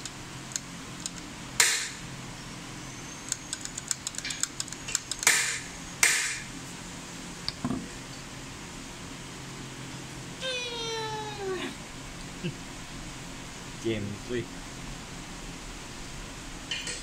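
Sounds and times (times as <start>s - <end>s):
rapid light mechanism clicking: 0.0s - 1.9s, 3.3s - 6.2s
steady low hum: 0.0s - 17.0s.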